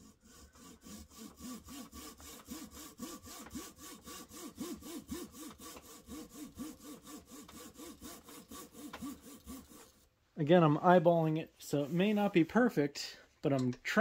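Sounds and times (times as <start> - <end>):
saw cutting wood: 0.0 - 10.1.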